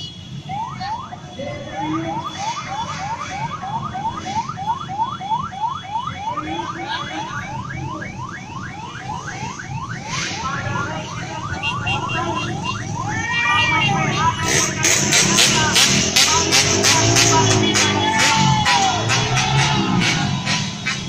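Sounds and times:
electronic siren whooping: 0.5s - 21.0s
motorcycle engines running: 10.6s - 21.0s.

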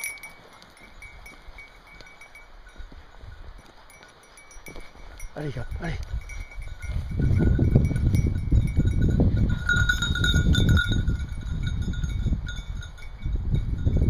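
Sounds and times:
dog collar bells tinkling: 0.0s - 14.0s
wind rumble on microphone: 4.6s - 14.0s.

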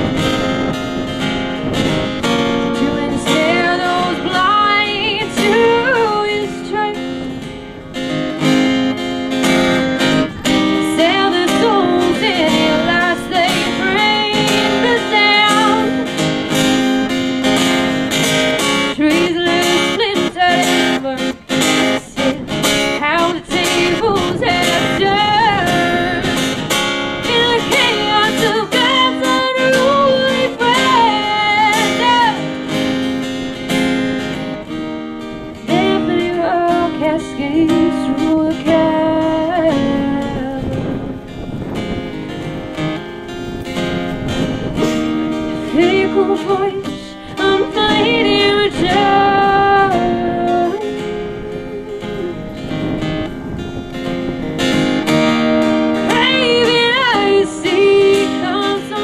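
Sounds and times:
acoustic guitar strumming: 0.0s - 59.0s
woman singing: 2.5s - 7.5s, 10.4s - 32.6s, 35.6s - 41.1s, 45.4s - 52.8s, 56.0s - 59.0s.

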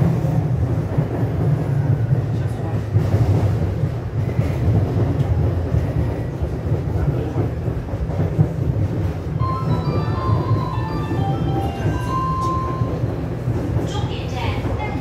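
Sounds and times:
train wheels rumbling on rail: 0.0s - 15.0s
electronic chime melody: 9.4s - 13.0s.

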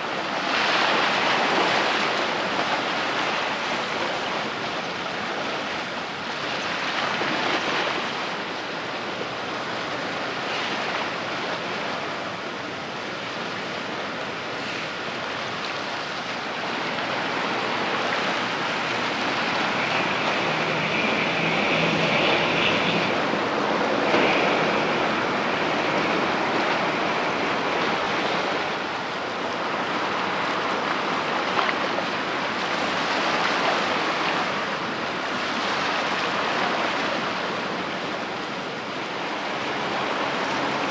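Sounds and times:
sea water lapping: 0.0s - 40.9s
wind: 0.0s - 40.9s.

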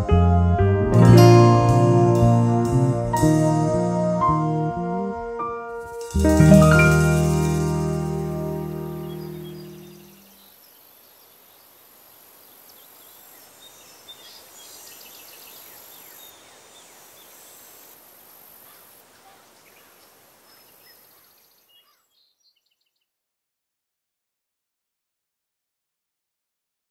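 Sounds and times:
steady high hiss: 5.6s - 22.2s
small birds chirping: 6.0s - 23.1s.

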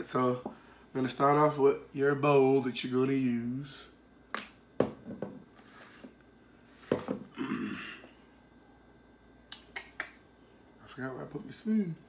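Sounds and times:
rustling scrape: 5.6s - 7.0s.

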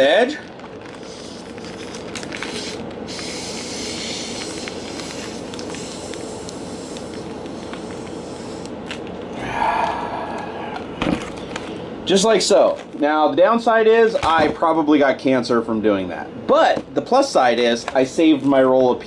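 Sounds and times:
plastic bag crinkling: 0.2s - 8.2s.

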